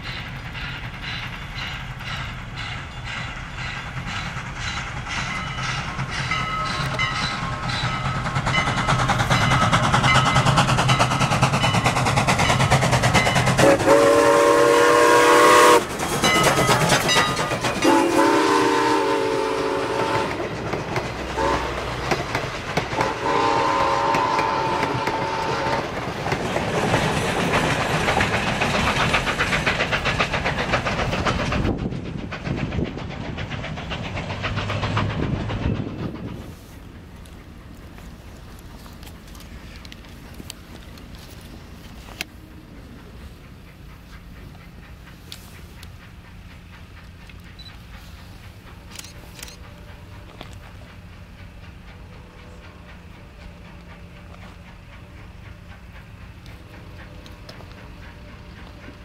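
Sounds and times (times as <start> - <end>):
steam locomotive exhaust beating: 0.0 - 59.0
train wheels clicking on rails: 0.0 - 59.0
steam whistle blasts: 13.6 - 15.9, 17.8 - 20.4, 21.4 - 21.8, 23.0 - 25.9.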